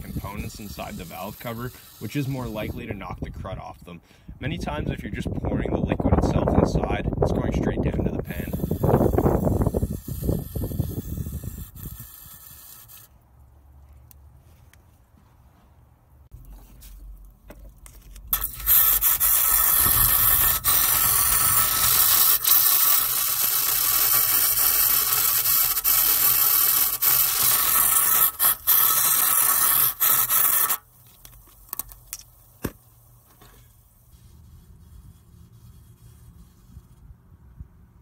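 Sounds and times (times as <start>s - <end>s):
aerosol can hissing: 0.0s - 2.6s, 8.4s - 13.1s, 18.4s - 30.8s.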